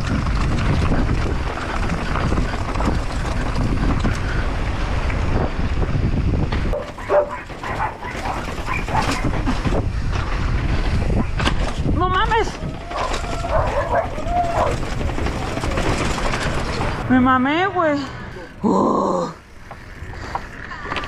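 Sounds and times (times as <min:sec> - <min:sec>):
wind buffeting microphone: 0:00.0 - 0:18.4
dog barking: 0:06.8 - 0:09.3, 0:12.9 - 0:14.8.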